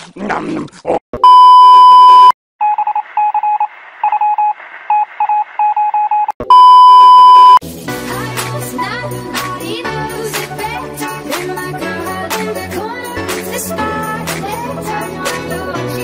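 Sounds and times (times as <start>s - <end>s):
short electronic beeps: 1.2s - 7.6s.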